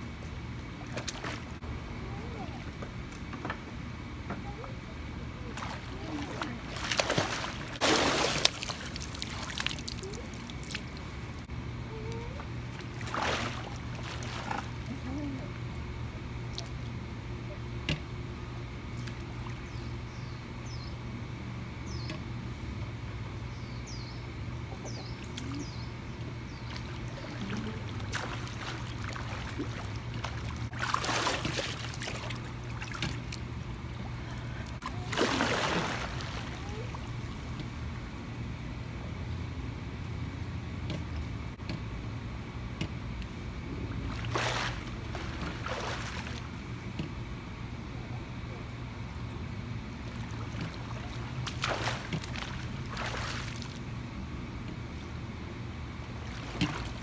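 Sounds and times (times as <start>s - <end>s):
steady low hum: 0.0s - 57.0s
pool water splashing: 0.7s - 1.6s, 5.5s - 11.5s, 12.3s - 15.4s, 26.6s - 38.2s, 43.9s - 47.0s, 49.9s - 54.2s, 56.0s - 57.0s.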